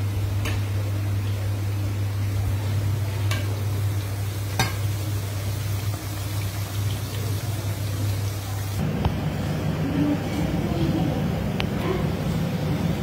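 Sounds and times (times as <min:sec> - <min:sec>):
chicken deep-frying in oil: 0:00.0 - 0:09.8.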